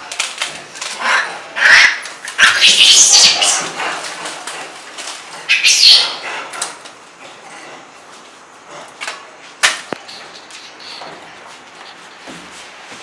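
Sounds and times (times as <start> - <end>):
monkeys screeching: 1.0 - 3.8, 5.4 - 6.2.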